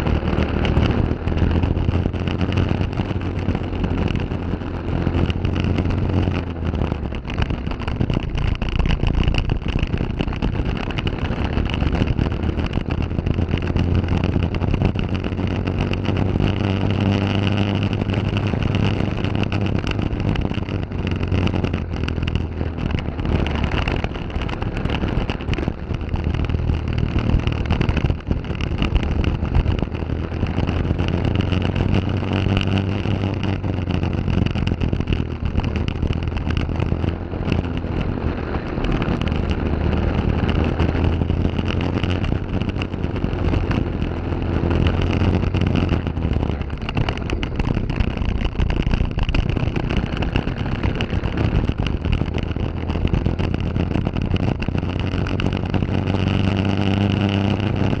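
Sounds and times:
kart engine revving: 0:00.0 - 0:58.0.

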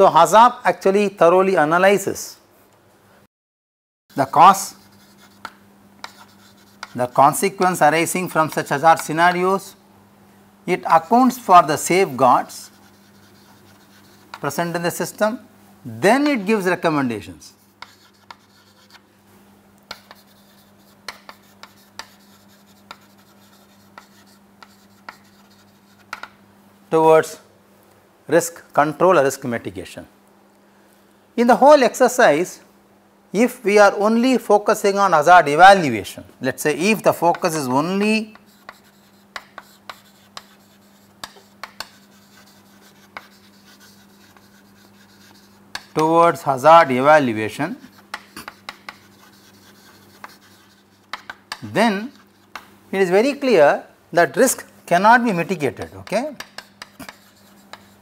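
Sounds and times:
chalk tapping and scratching: 0:04.1 - 0:07.8, 0:11.0 - 0:14.7, 0:17.5 - 0:19.1, 0:19.9 - 0:26.4, 0:37.0 - 0:46.2, 0:47.7 - 0:52.7, 0:55.4 - 0:58.0
faint hum: 0:04.1 - 0:58.0.

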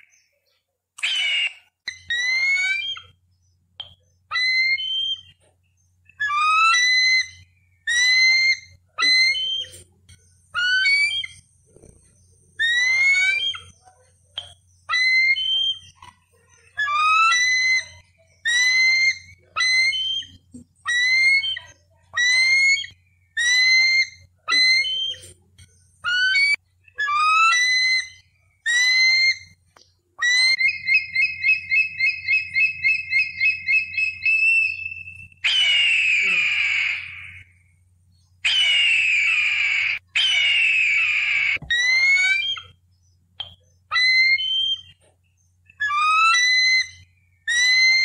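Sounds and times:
eagle chattering: 0:06.1 - 0:29.6, 0:30.2 - 0:37.5, 0:38.4 - 0:42.8
eagle piping whistles: 0:30.2 - 0:37.6, 0:38.4 - 0:42.8, 0:43.4 - 0:45.0
eagle harsh scream: 0:35.5 - 0:37.4.

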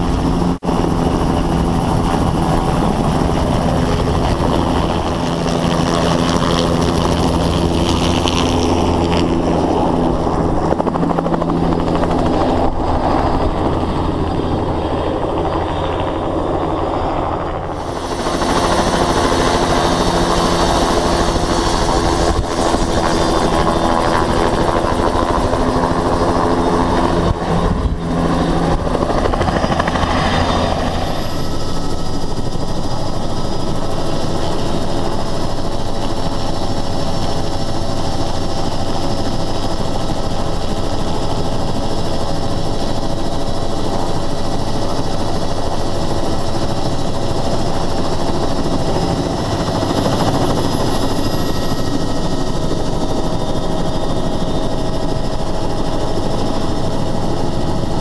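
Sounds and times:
helicopter rotor and engine: 0:00.0 - 0:58.0.

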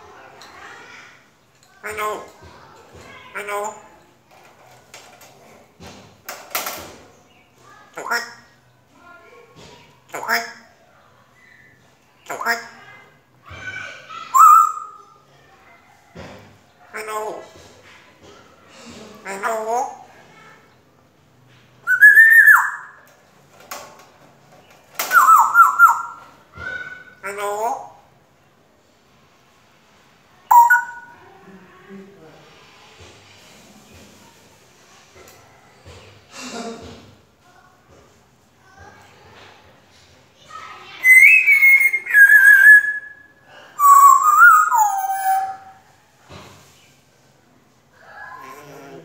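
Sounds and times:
parrot whistling: 0:14.4 - 0:15.0, 0:21.9 - 0:23.0, 0:25.1 - 0:26.2, 0:30.5 - 0:31.2, 0:41.0 - 0:45.8.

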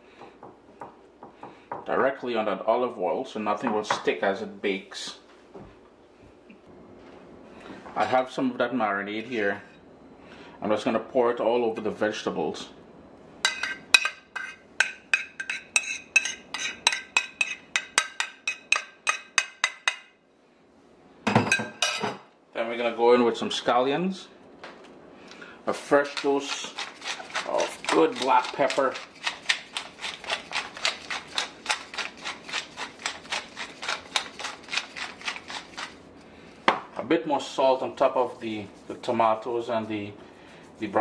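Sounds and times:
metal spoon clinking on ceramic bowl: 0:13.5 - 0:20.1
pepper mill grinding: 0:25.7 - 0:36.1.

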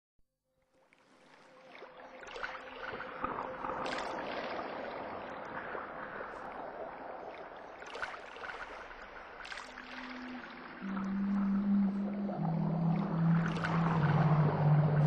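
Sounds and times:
water lapping and splashing: 0:00.7 - 0:15.0
sharp water splashes: 0:07.3 - 0:10.8.

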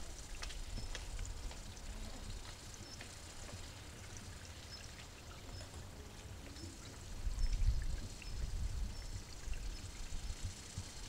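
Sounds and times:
faint outdoor hiss: 0:00.0 - 0:11.0
wind buffeting microphone: 0:07.0 - 0:11.0.

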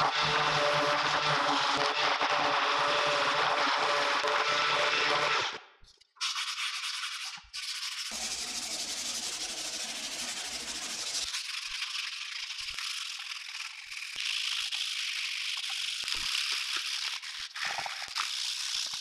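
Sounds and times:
power sander: 0:00.0 - 0:05.6, 0:08.1 - 0:11.2
sanding pad rasping on metal: 0:06.2 - 0:11.3.

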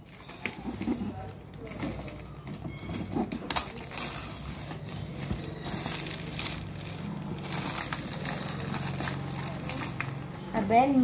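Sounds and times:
cardboard box crinkling and rustling: 0:03.0 - 0:10.0.

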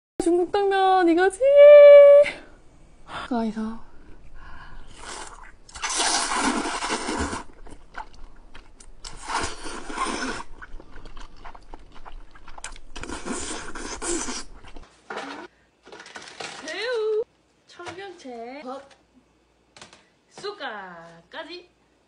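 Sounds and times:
person slurping noodles: 0:04.9 - 0:08.1, 0:09.1 - 0:15.5
wet mouth noises: 0:04.9 - 0:15.4.

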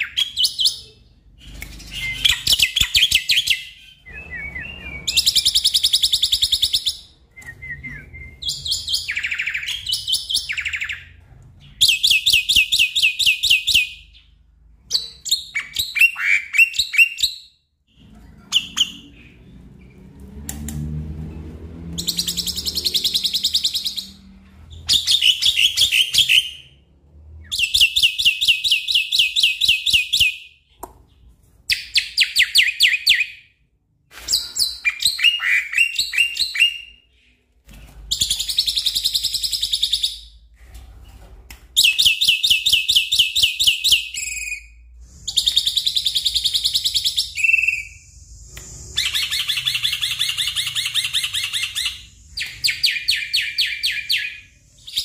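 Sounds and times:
bird chattering song: 0:00.0 - 0:14.3.

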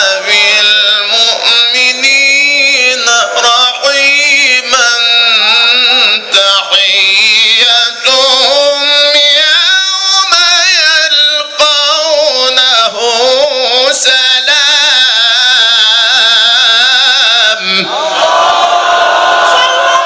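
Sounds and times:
man chanting into microphone: 0:00.0 - 0:18.0
audience calling out: 0:17.9 - 0:20.0.

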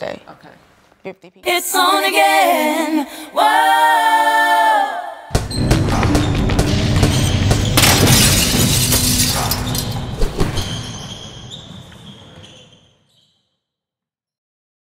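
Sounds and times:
crash: 0:05.4 - 0:11.0.

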